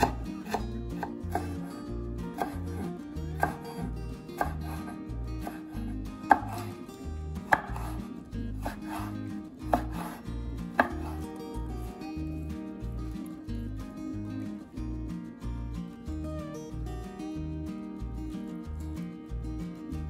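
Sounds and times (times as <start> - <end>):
knife knocking on wooden board: 6.3 - 6.6, 7.5 - 8.0.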